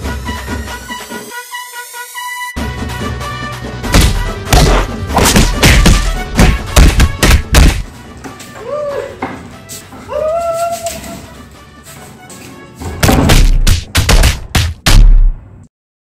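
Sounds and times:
background music: 0.0s - 15.6s
heavy thumps of stick blows: 3.8s - 7.9s, 12.9s - 15.4s
short vocal cry: 10.1s - 11.2s.

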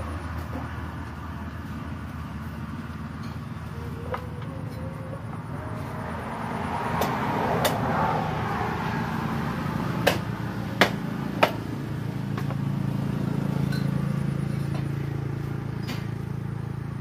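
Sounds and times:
road traffic hum: 0.0s - 17.0s
cleaver chopping on wooden block: 10.0s - 11.6s.

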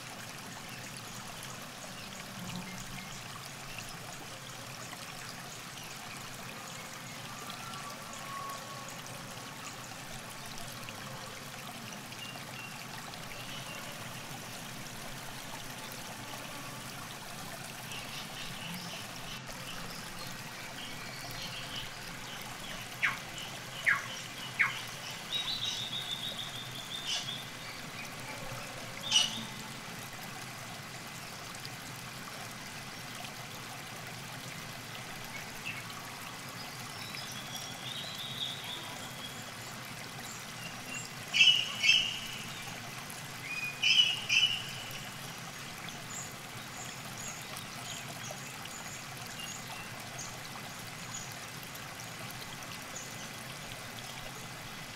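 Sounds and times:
river water trickling: 0.0s - 54.9s
bird chirping and trilling: 41.4s - 42.4s, 43.6s - 45.0s.

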